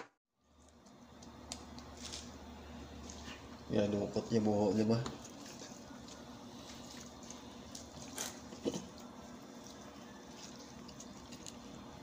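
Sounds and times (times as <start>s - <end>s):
wet squishing of stuffing chicken: 5.2s - 12.0s.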